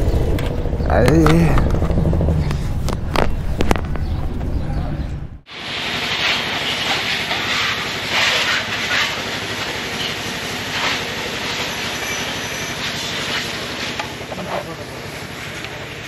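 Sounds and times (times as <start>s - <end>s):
wind and road noise: 0.0s - 5.5s
motorcycle engine pulse: 0.0s - 16.0s.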